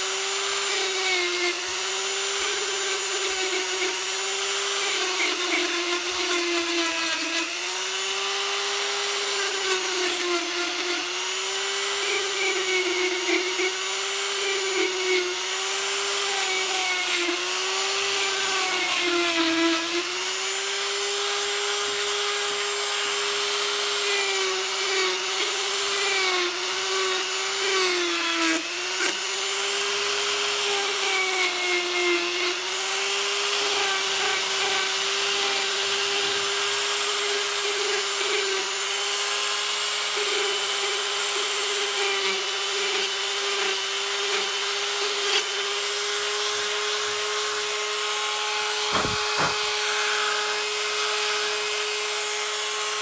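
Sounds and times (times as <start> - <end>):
rotary tool motor whine: 0.0 - 53.0
sanding drum rasping on rubber: 48.7 - 49.9.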